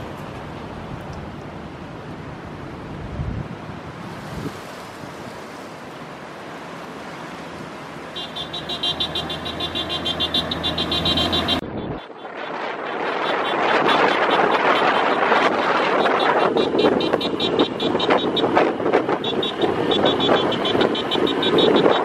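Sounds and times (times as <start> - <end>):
road and wind noise: 0.0 - 22.0
vehicle engines running: 6.3 - 22.0
wind buffeting microphone: 11.6 - 22.0.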